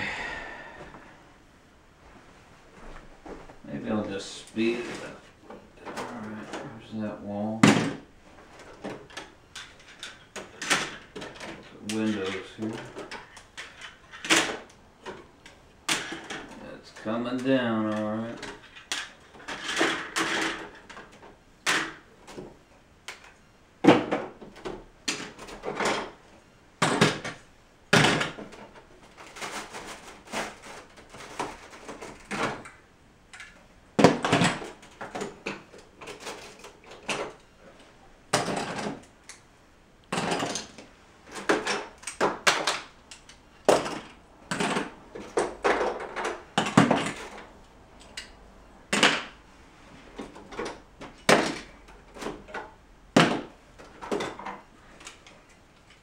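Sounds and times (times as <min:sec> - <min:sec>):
plastic bricks clattering: 0:07.6 - 0:15.3, 0:15.9 - 0:16.6, 0:17.8 - 0:22.5, 0:26.8 - 0:37.4, 0:38.3 - 0:39.1, 0:40.1 - 0:47.5.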